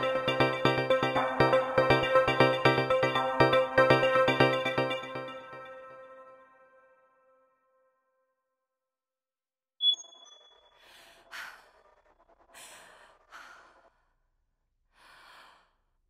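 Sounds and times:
short high beep: 9.8 - 10.6.

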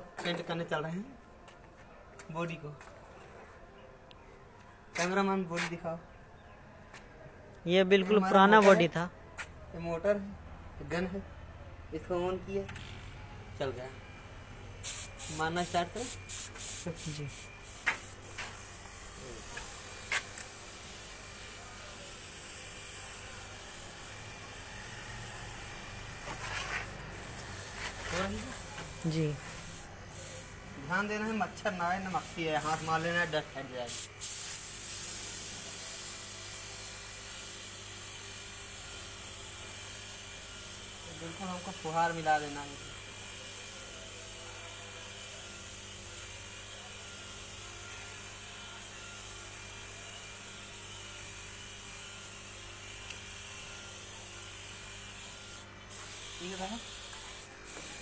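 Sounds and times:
electric motor humming: 12.6 - 58.0
paint spray gun hissing: 14.8 - 21.6, 27.2 - 38.7, 54.5 - 58.0.

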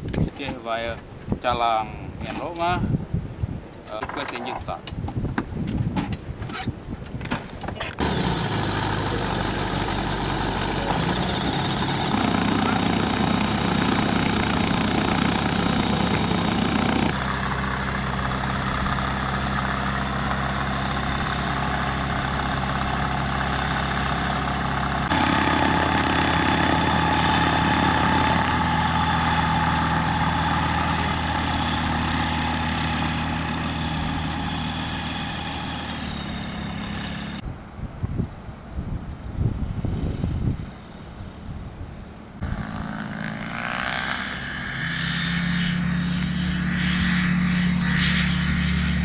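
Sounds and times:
light aircraft engine and propeller: 7.9 - 37.4, 39.7 - 49.0.

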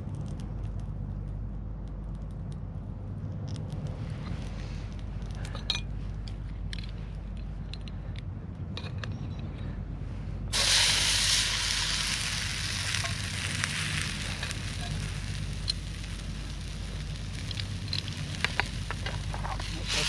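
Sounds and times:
greens sizzling in frying pan: 10.5 - 20.0.

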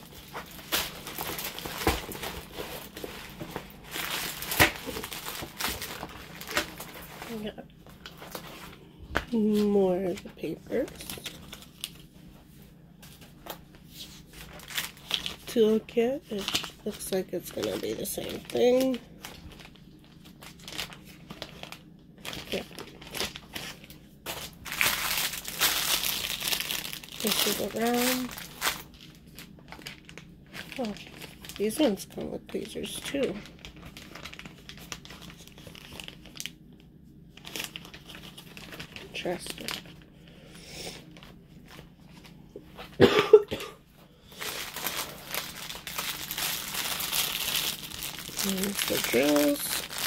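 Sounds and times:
plastic packaging crinkling: 0.0 - 12.1, 13.1 - 40.3, 41.0 - 43.0, 44.2 - 50.0
person coughing: 43.0 - 43.8.

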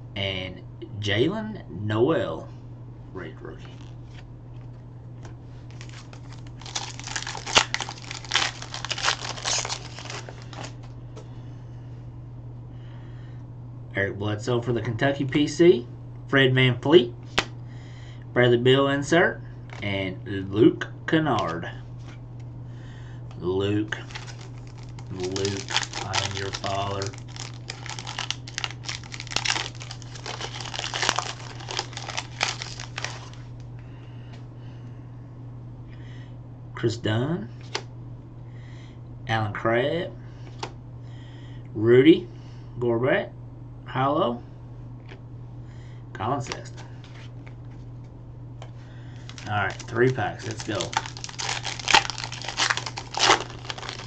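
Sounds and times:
plastic wrapper crinkling: 5.7 - 10.9, 23.9 - 33.6, 49.1 - 54.0
sharp wrapper snap: 49.2 - 54.0.

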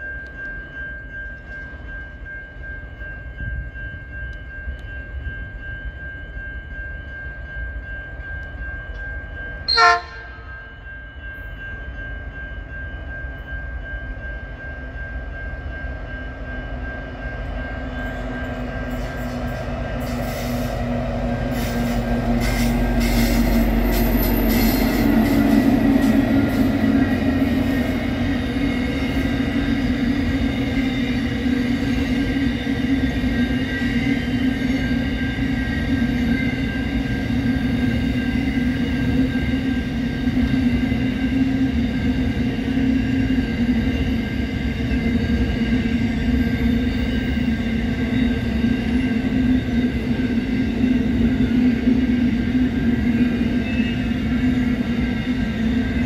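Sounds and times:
diesel locomotive engine: 0.0 - 56.0
locomotive horn blast: 9.7 - 10.6.

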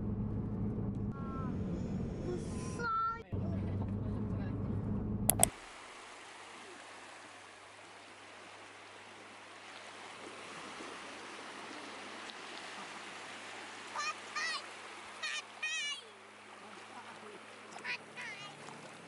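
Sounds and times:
small waves on sand: 5.5 - 19.0.

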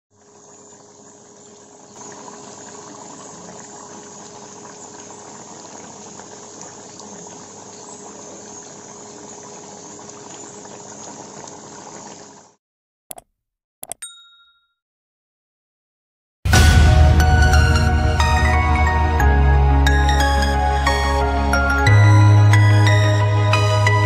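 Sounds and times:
curry bubbling in a pot: 0.2 - 12.5.

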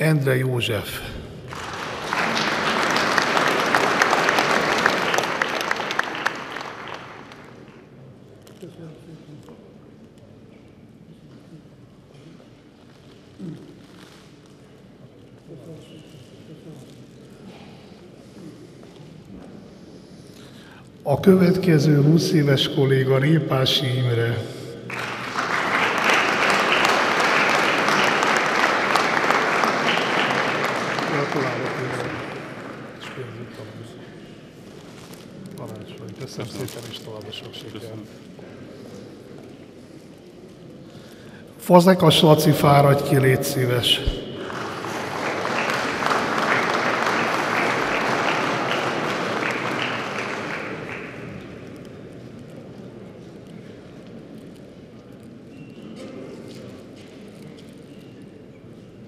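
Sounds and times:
audience applauding: 1.4 - 7.9, 24.2 - 33.7, 42.8 - 51.9.

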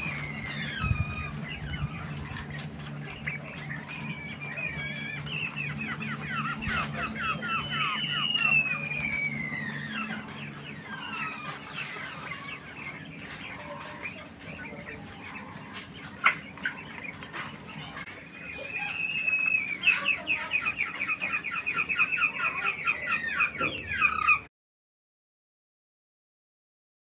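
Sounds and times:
quail whistle-like call: 0.0 - 13.0, 18.5 - 24.5
quail chirping calls: 0.0 - 24.5.

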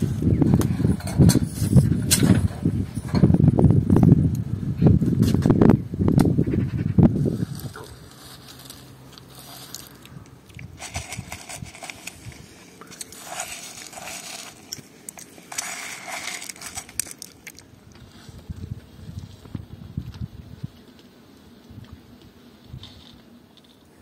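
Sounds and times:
grains rustling on a plate: 7.1 - 19.6.

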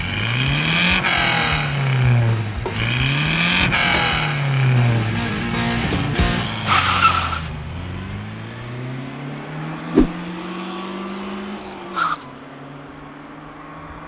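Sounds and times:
car engine accelerating: 0.0 - 14.0
sharp thud: 9.9 - 10.2
short clinks: 11.1 - 12.3.

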